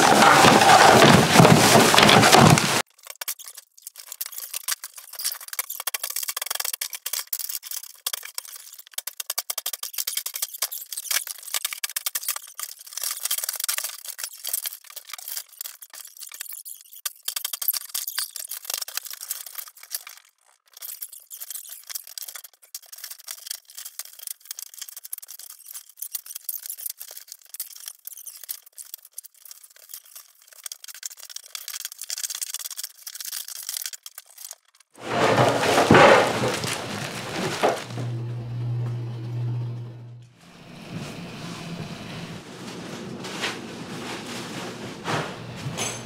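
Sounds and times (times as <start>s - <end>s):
broken boards being handled: 0.0s - 2.8s, 35.0s - 38.2s
sledgehammer smashing cabinet: 0.0s - 2.8s, 35.0s - 38.2s
wood cracking and clattering: 0.0s - 39.0s.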